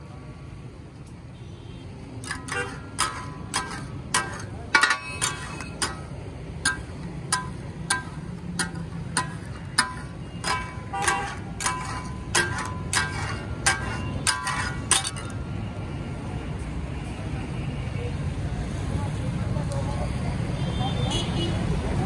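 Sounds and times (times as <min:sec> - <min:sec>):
metal spatula striking steel griddle: 0:02.2 - 0:15.5.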